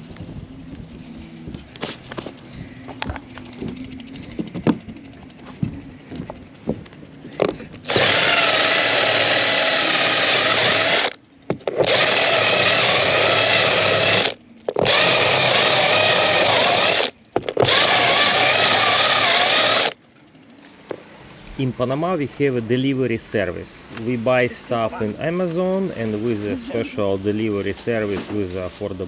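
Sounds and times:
cordless drill boring: 7.8 - 20.0.

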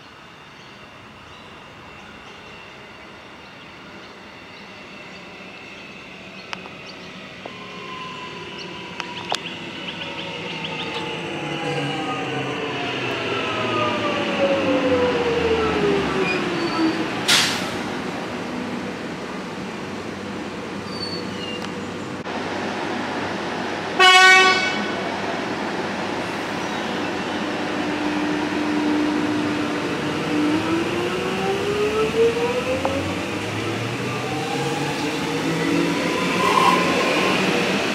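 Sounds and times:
air hiss: 17.3 - 17.9
train horn toot: 24.0 - 25.0.

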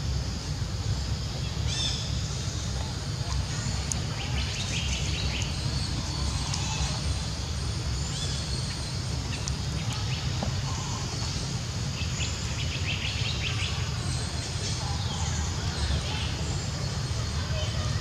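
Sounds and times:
low outdoor rumble: 0.0 - 18.0.

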